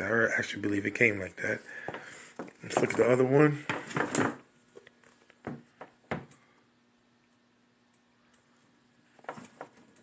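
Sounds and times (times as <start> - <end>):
sneakers knocking on wooden table: 2.7 - 4.4.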